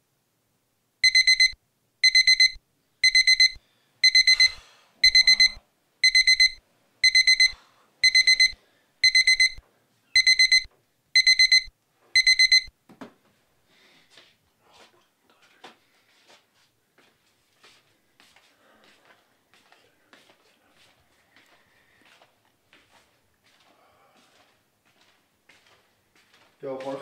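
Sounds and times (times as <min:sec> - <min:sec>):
alarm beeping: 0:01.0 - 0:09.6, 0:10.2 - 0:12.7.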